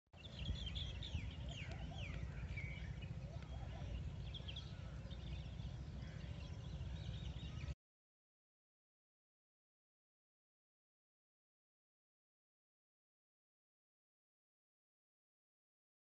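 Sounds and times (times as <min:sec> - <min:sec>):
birds chirping: 0:00.2 - 0:07.8.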